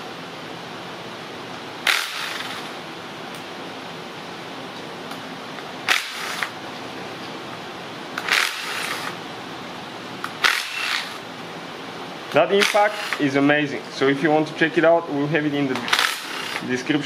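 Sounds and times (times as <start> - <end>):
impact driver bursts: 1.8 - 2.7, 5.9 - 6.6, 8.2 - 9.2, 10.4 - 11.2, 12.6 - 13.3, 15.9 - 16.7.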